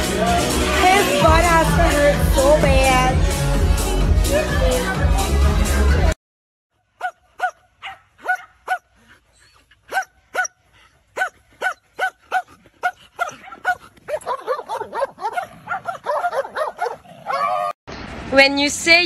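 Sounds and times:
dog barking: 7.0 - 8.9, 9.9 - 10.6, 11.2 - 17.7.

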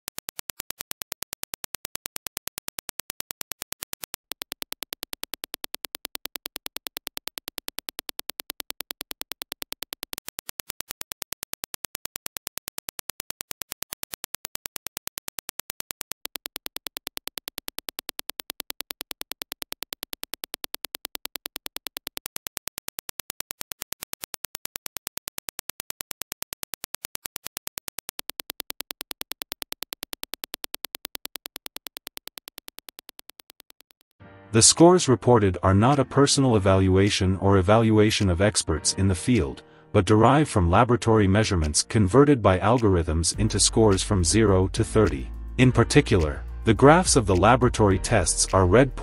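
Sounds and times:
train of sharp digital clicks: 0.0 - 34.2.

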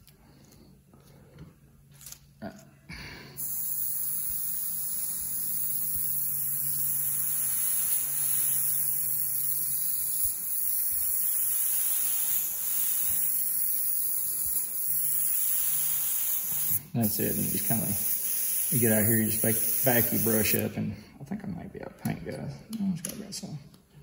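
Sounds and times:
airbrush air hiss: 3.2 - 20.8.

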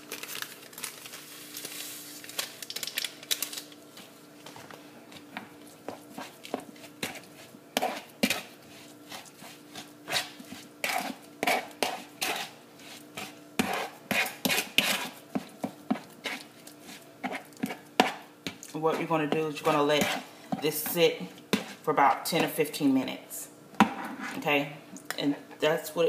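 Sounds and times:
spoon scraping plastic bowl: 5.9 - 22.6.

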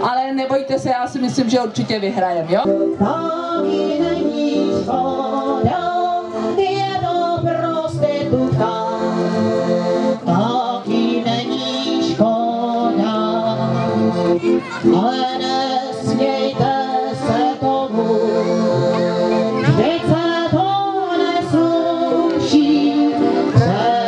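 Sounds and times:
piano accordion playing: 2.4 - 24.0
woman singing: 3.0 - 9.2, 10.3 - 13.9, 14.9 - 18.6, 19.6 - 24.0.

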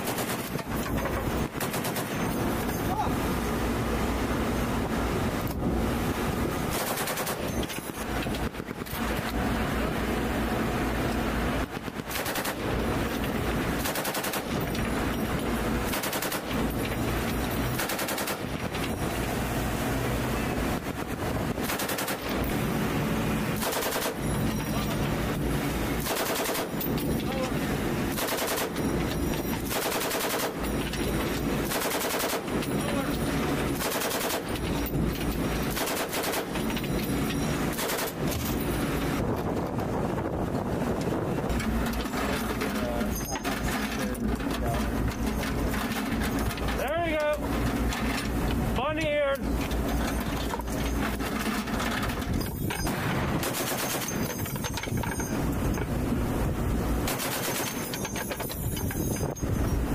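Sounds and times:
machine gun firing bursts: 0.0 - 2.4, 6.7 - 7.7, 12.0 - 12.8, 13.8 - 14.7, 15.8 - 16.8, 17.7 - 18.7, 21.6 - 22.5, 23.6 - 24.4, 26.0 - 26.9, 28.1 - 28.9, 29.6 - 30.7, 31.6 - 33.1, 33.7 - 34.6, 35.7 - 36.8, 37.7 - 38.4, 52.8 - 54.4, 57.0 - 58.1.

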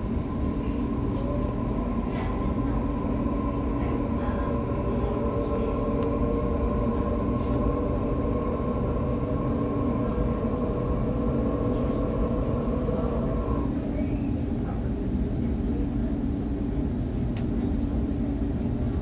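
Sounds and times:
train traction motor whine: 0.0 - 14.1
wheels rumbling on rail: 0.0 - 19.0.

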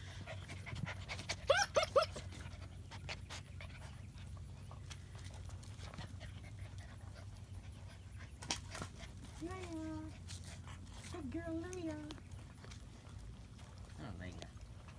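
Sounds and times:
paws and claws on concrete: 0.0 - 14.9
puppies yipping: 0.2 - 9.2.

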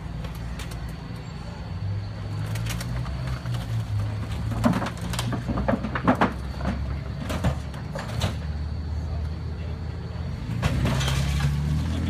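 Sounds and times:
sheet metal creaking and crunching: 2.4 - 8.5.

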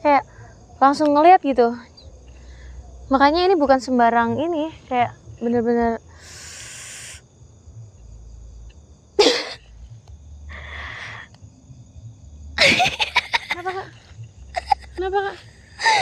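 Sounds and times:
night insects chirring: 0.0 - 16.0
breathy hiss: 6.1 - 7.3, 10.5 - 11.4.

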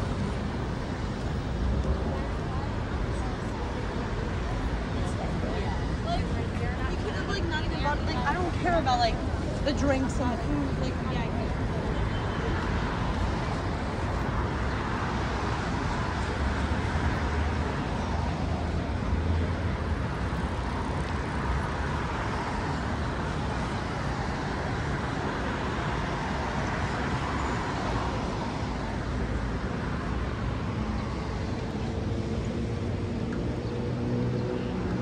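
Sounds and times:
rumble of passing cars: 0.0 - 35.0.

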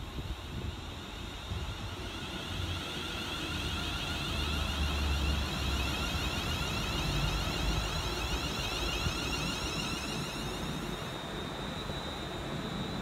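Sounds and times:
electric train traction motors whining: 0.0 - 13.0
wheels rumbling on rails: 0.0 - 13.0.

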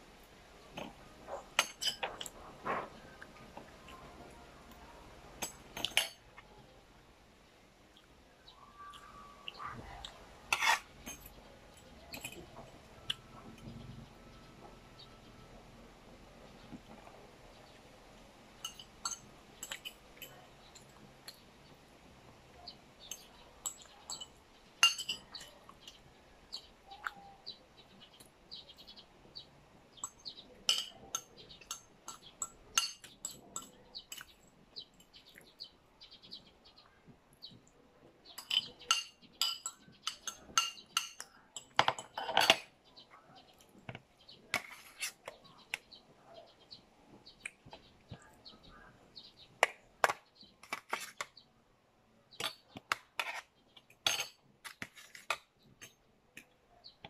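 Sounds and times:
cutlery clinking on plate: 0.8 - 2.9, 5.4 - 6.2, 10.5 - 12.7, 18.6 - 20.9, 23.1 - 25.5, 30.0 - 34.3, 38.4 - 42.7, 52.4 - 56.0.

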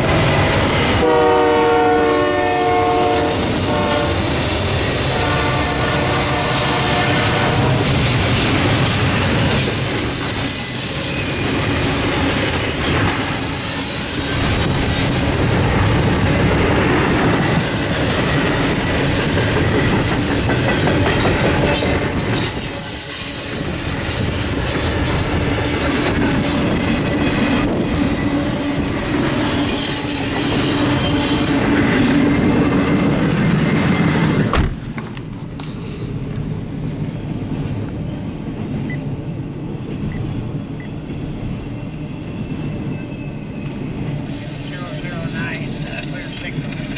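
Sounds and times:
freight cars rolling on rails: 0.0 - 38.8, 39.6 - 46.9
high wheel squeal: 9.6 - 15.2, 17.4 - 20.9, 21.5 - 26.1, 28.1 - 34.6, 39.8 - 45.2.

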